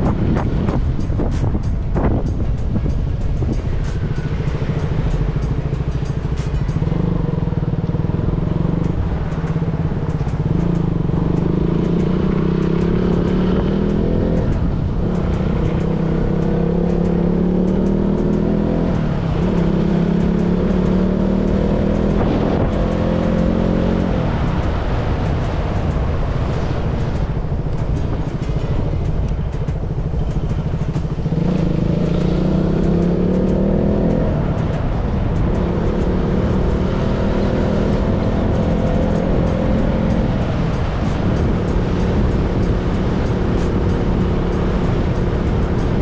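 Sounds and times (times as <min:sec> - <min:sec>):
motorcycle engine accelerating: 0:00.0 - 0:46.0.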